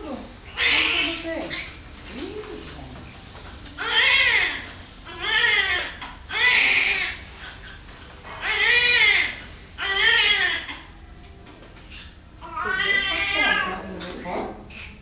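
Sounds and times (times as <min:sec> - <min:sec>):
newborn baby crying: 0:00.5 - 0:01.2, 0:03.8 - 0:07.2, 0:08.4 - 0:10.9, 0:12.4 - 0:13.8.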